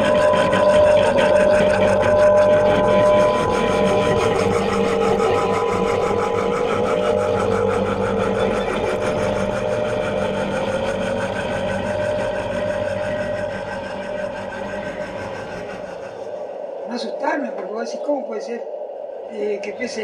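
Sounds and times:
electroacoustic drone with flutter: 0:00.0 - 0:20.0.

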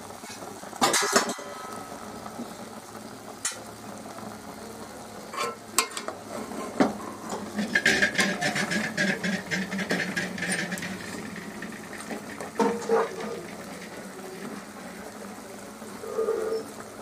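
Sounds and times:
meat sizzling in oil: 0:00.0 - 0:17.0
metal spoon scraping pot: 0:05.4 - 0:12.0.

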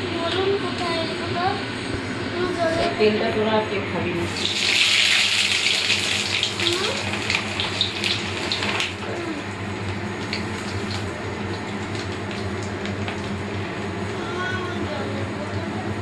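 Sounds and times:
food deep-frying in oil: 0:04.3 - 0:13.7.

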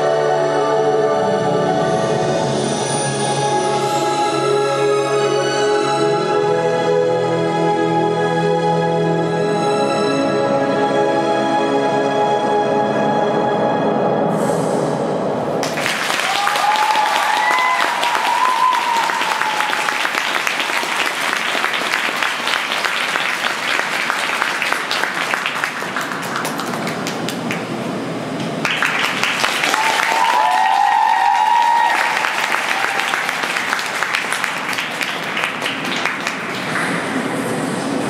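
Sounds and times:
high-pitched cheering: 0:15.6 - 0:25.0, 0:29.0 - 0:36.0
audience applauding: 0:15.6 - 0:37.7.

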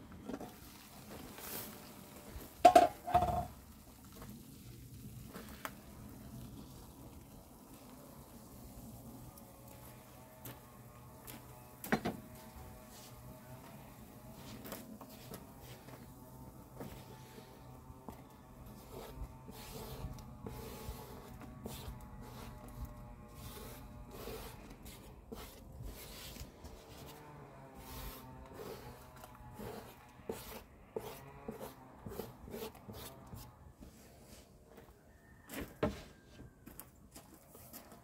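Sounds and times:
hands scraping dough on wooden board: 0:14.4 - 0:33.5.

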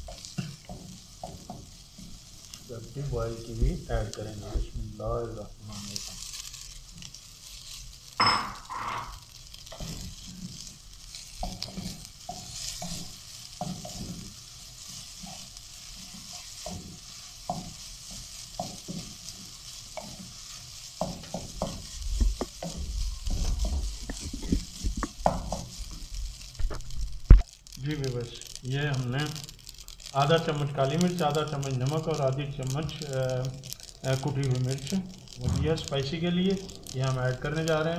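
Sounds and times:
wooden spatula scraping a pan: 0:00.0 - 0:27.2, 0:28.4 - 0:37.9
food sizzling in a wok: 0:00.0 - 0:37.9.

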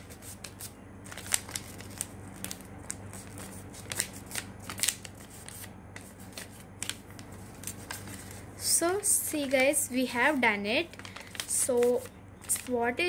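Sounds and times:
paper rustling and crackling: 0:00.0 - 0:08.5, 0:10.8 - 0:12.9.

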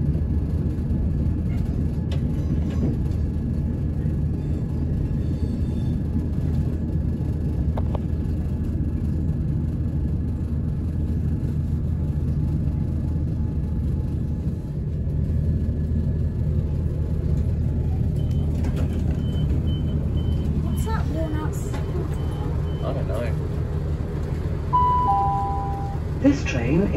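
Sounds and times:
freight train passing: 0:00.0 - 0:26.9
low rumble of rail traffic: 0:00.0 - 0:26.9
faint high beep: 0:24.7 - 0:26.0.

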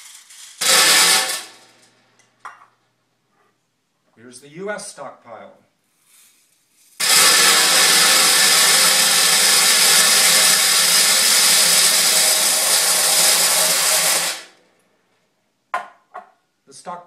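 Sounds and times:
metal pellets rattling into metal can: 0:00.0 - 0:01.9, 0:06.1 - 0:14.5.

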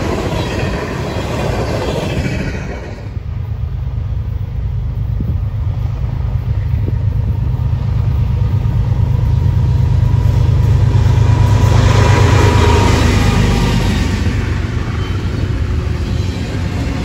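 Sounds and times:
train engine rumble: 0:00.0 - 0:17.0.

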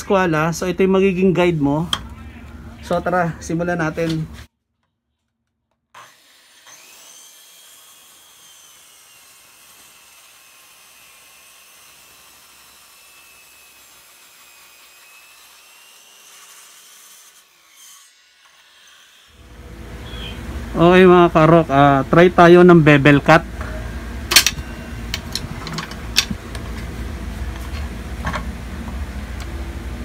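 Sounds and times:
circular saw cutting wood: 0:06.0 - 0:20.2.

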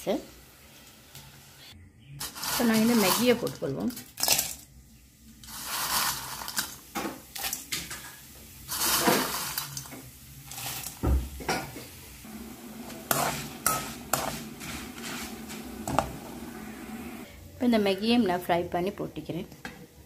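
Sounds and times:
metal spoon scraping wok: 0:02.2 - 0:03.6, 0:08.7 - 0:09.9, 0:12.8 - 0:16.5
noodles sizzling in hot oil: 0:05.3 - 0:17.2.

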